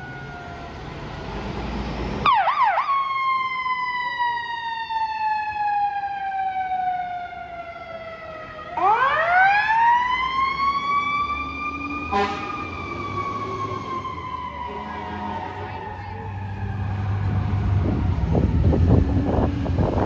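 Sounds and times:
fire truck siren: 0.0 - 20.0
truck engines rumbling: 0.0 - 20.0
horn blast: 12.1 - 12.6.

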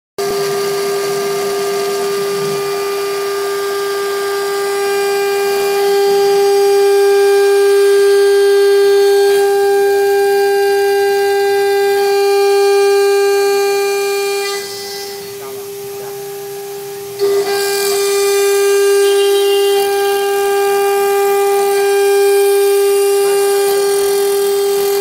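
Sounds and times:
router spindle whine: 0.2 - 25.0.

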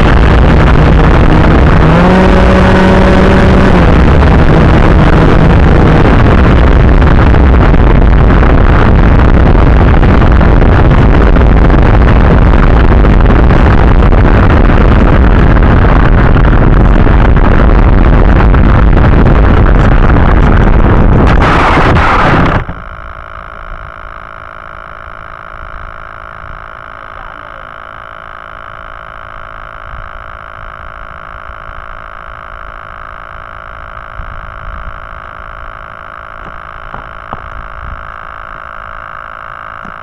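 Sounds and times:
rushing air: 0.0 - 23.5
electric motor of model plane: 0.0 - 40.0
electronic whine: 0.0 - 40.0.

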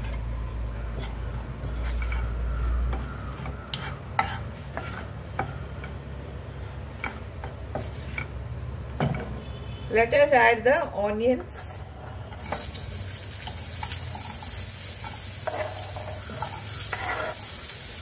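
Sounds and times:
spatula scraping and tapping pan: 0.9 - 6.1, 7.0 - 8.4, 13.4 - 18.0
seeds sizzling in hot oil: 12.4 - 18.0.

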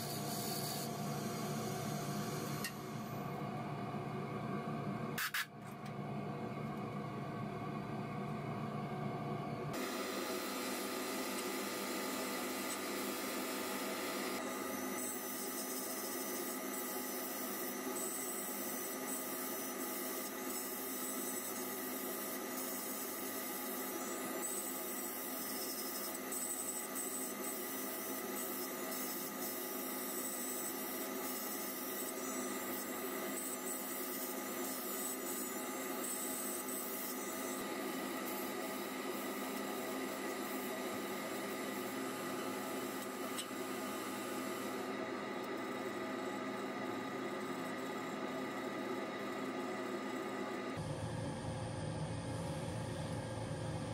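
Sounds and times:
machine hum: 34.3 - 53.9.

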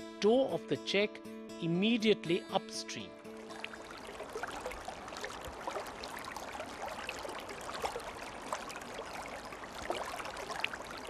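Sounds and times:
stream babbling over stones: 3.3 - 11.0.

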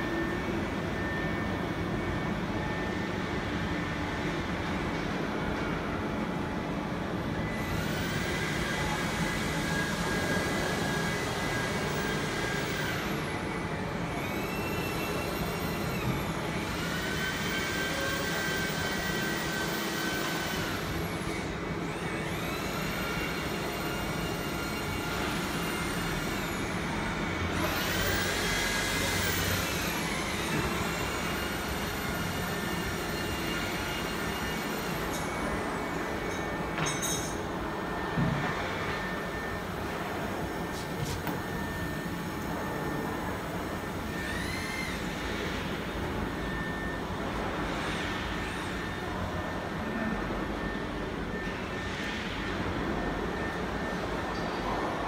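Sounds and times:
steady machine noise: 0.0 - 55.0
router motor whines: 7.5 - 13.2, 14.2 - 35.4, 41.0 - 45.5.

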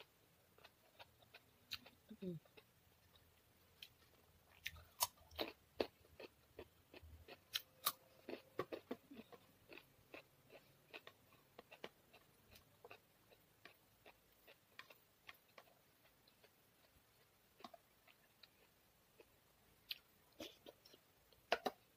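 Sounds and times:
soft chewing clicks: 0.6 - 21.8
carrot crunching: 3.8 - 15.7.

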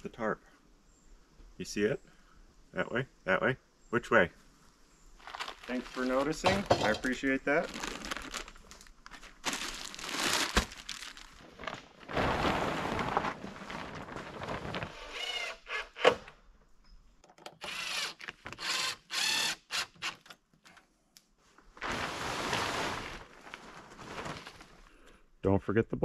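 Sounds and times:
plastic tarp crinkling: 5.2 - 15.2, 21.6 - 25.0.

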